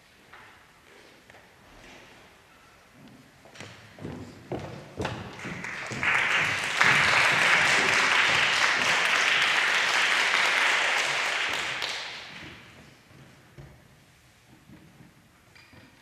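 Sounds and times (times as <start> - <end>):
audience applauding: 5.2 - 12.8.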